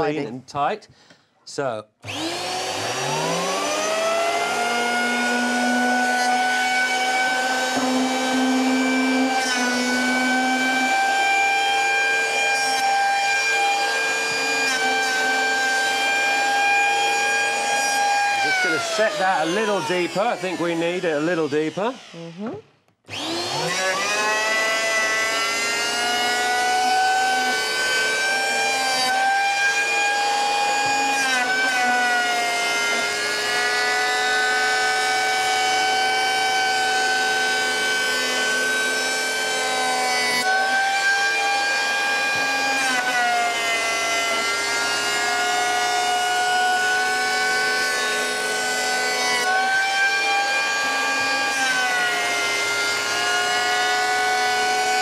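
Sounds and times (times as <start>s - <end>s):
electric planer whining: 2.0s - 55.0s.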